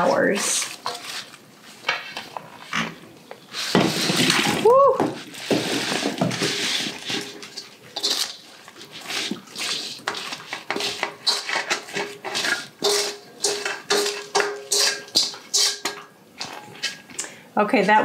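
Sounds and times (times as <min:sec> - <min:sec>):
spoon scraping a metal bowl: 0:00.0 - 0:01.4, 0:05.4 - 0:17.1
wet food squelching: 0:05.2 - 0:17.2.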